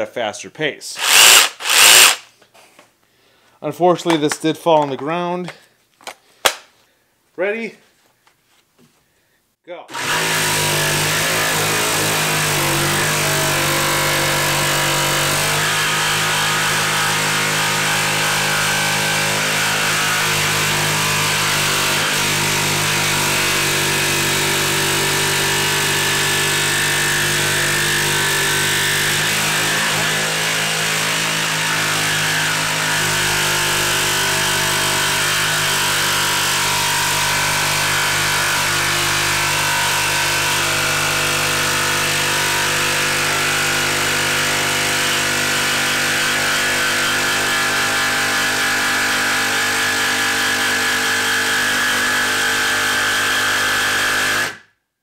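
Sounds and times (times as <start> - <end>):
jigsaw cutting wood: 1.0 - 2.3, 9.9 - 54.7.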